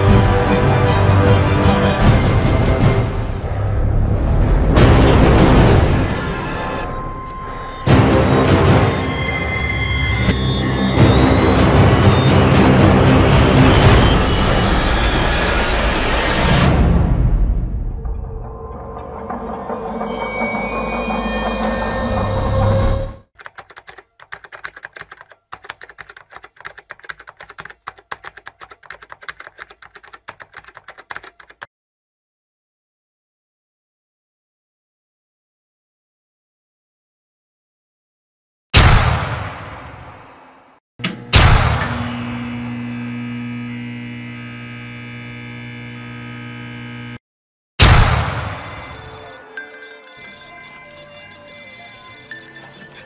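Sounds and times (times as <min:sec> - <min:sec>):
fast typing on laptop keyboard: 0:23.4 - 0:31.7
humming electronic drone: 0:41.0 - 0:47.2.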